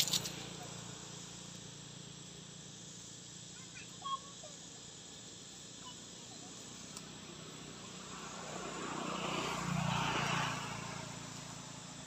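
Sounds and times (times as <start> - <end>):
insects buzzing: 0.0 - 12.0
vehicle passing by: 7.1 - 12.0.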